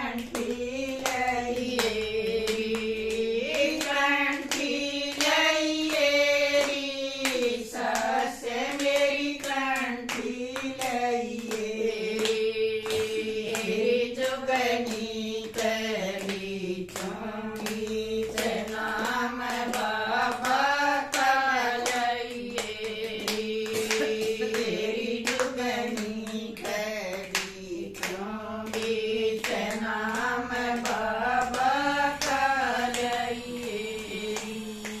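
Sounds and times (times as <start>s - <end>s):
rhythmic hand clapping: 0.0s - 35.0s
women singing devotional song: 0.0s - 35.0s.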